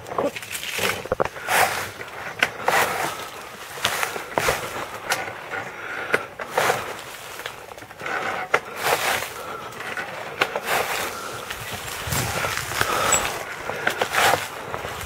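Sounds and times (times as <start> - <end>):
pedal quad rattling: 0.0 - 15.0
steady rustling: 0.4 - 15.0.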